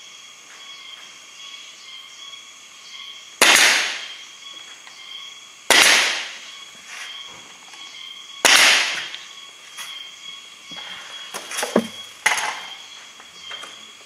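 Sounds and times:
nail gun firing: 3.4 - 4.0, 5.7 - 6.3, 8.4 - 9.1.

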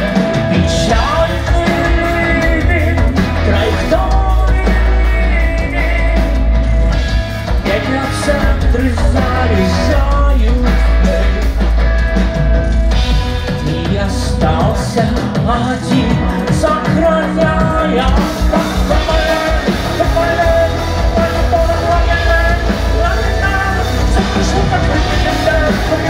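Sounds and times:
person singing: 0.0 - 11.8, 13.4 - 26.0
heavy bass line: 0.0 - 26.0
live rock band playing: 0.0 - 26.0.

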